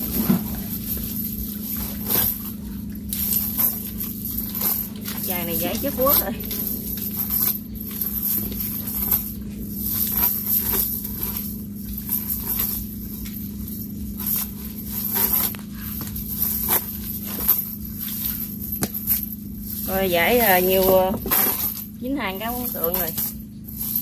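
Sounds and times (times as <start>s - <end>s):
chain weights dragging on tiles: 0.0s - 24.0s
steady low hum: 0.0s - 24.0s
net mesh rustling: 0.1s - 19.3s.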